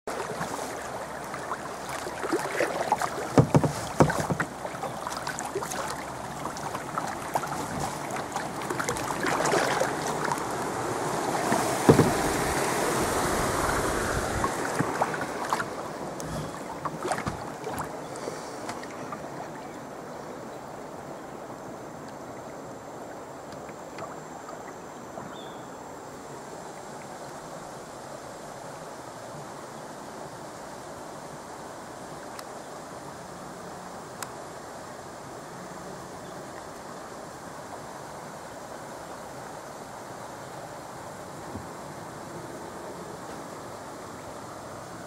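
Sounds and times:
river water rushing: 0:00.0 - 0:45.0
sharp splashes and knocks: 0:00.1 - 0:10.6, 0:11.4 - 0:17.9.

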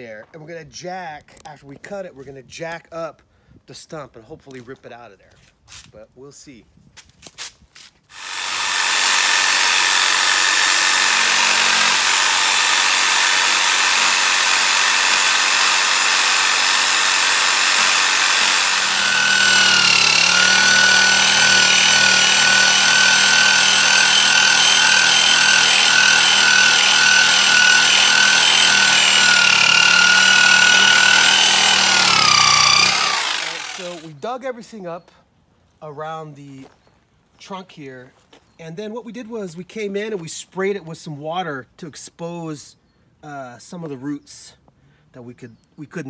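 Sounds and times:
electric saw motor whine: 0:08.2 - 0:34.1.

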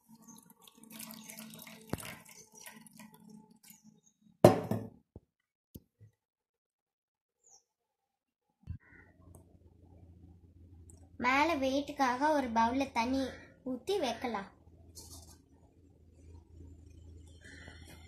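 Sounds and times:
water splashing into bowl: 0:00.0 - 0:03.8.

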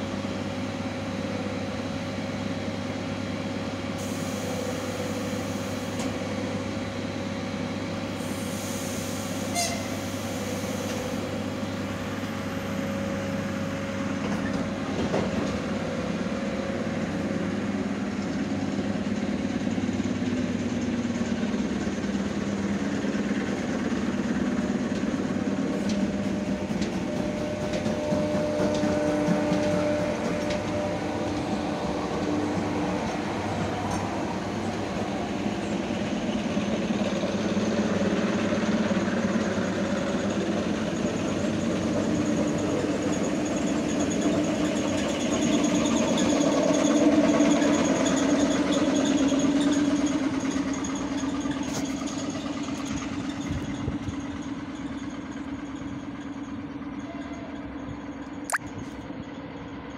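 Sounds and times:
train hum: 0:00.0 - 0:59.9
train wheels on rails: 0:00.0 - 0:59.9.

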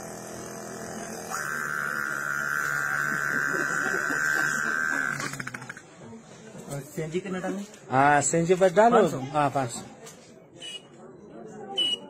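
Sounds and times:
man imitating generator drone: 0:00.0 - 0:05.8.

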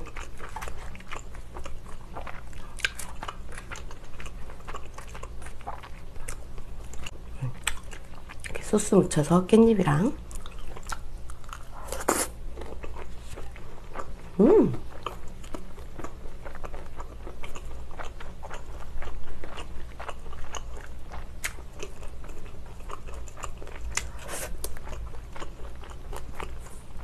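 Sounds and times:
crunchy chewing: 0:00.0 - 0:08.6, 0:10.3 - 0:27.0
person humming: 0:14.4 - 0:14.8.

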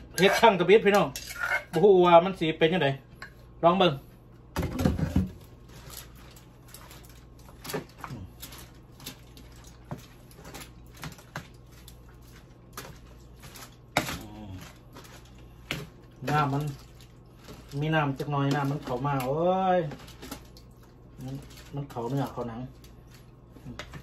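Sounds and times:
plastic spatula scraping foil tray: 0:00.1 - 0:01.8
foil crinkling: 0:05.3 - 0:24.0.

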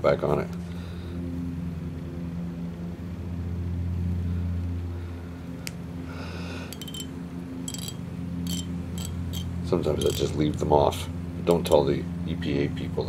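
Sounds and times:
low machine hum: 0:00.0 - 0:13.0
small tinkling clicks: 0:06.7 - 0:10.4.

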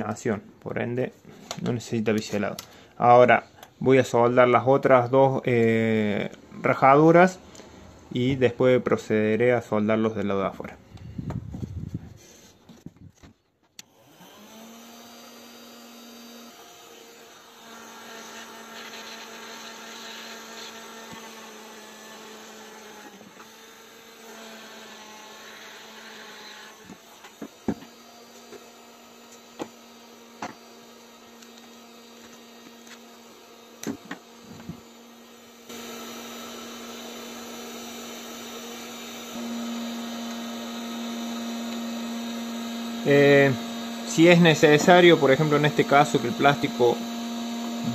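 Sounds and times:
electric hum of welding tool: 0:13.8 - 0:47.9.

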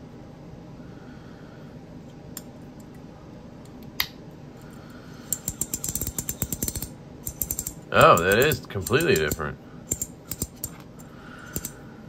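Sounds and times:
ratchet clicks: 0:05.3 - 0:10.8, 0:11.5 - 0:11.8.

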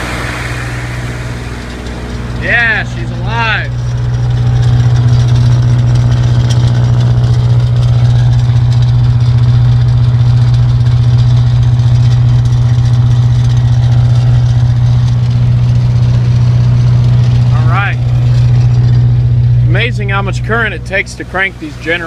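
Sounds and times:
diesel generator running: 0:00.0 - 0:22.0.

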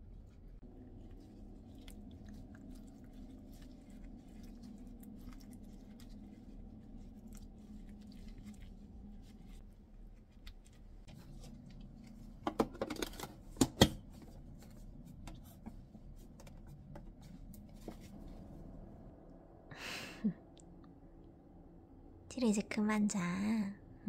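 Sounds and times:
gloved hands rustling and squishing: 0:00.0 - 0:12.4, 0:13.2 - 0:18.6.

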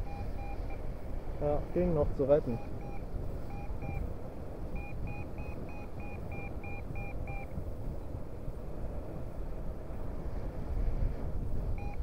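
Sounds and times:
variometer short beeps: 0:00.0 - 0:00.8, 0:02.4 - 0:04.0, 0:04.7 - 0:07.5, 0:11.8 - 0:12.0
wind on microphone: 0:00.0 - 0:12.0.

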